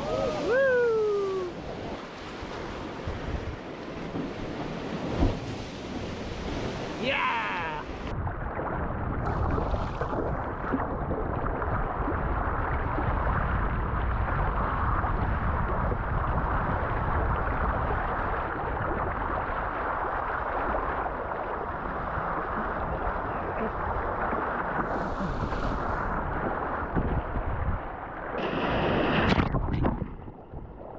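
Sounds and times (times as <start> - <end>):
ocean swell sloshing: 0.0 - 30.9.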